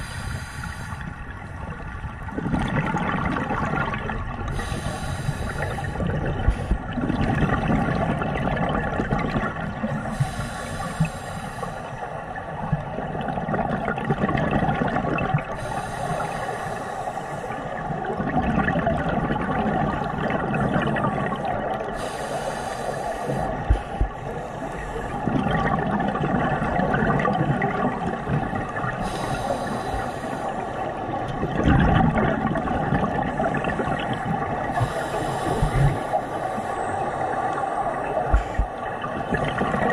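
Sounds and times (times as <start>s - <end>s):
regulator breathing underwater: 0.0s - 1.2s, 4.5s - 7.0s, 10.1s - 12.2s, 15.5s - 18.0s, 20.1s - 25.6s, 28.2s - 31.0s, 33.1s - 38.8s
underwater background: 0.0s - 39.9s
bubbles gurgling: 1.7s - 4.7s, 5.5s - 10.2s, 12.5s - 15.6s, 17.8s - 22.1s, 25.1s - 29.8s, 30.7s - 36.2s, 37.4s - 39.9s.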